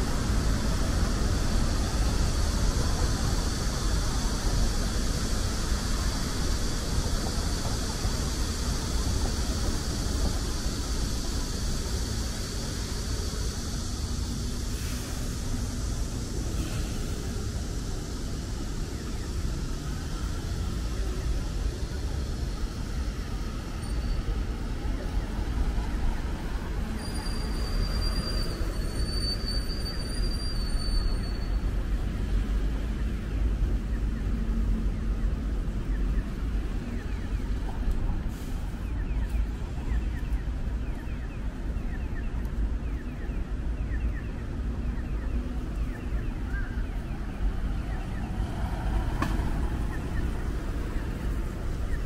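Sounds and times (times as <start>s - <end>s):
even hiss: 0.0s - 36.6s
low street rumble: 0.0s - 52.0s.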